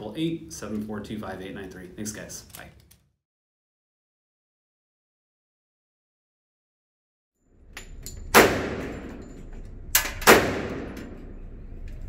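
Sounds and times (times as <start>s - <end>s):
small clicks: 2.4s - 3.1s
gunshots ringing indoors: 8.3s - 11.4s.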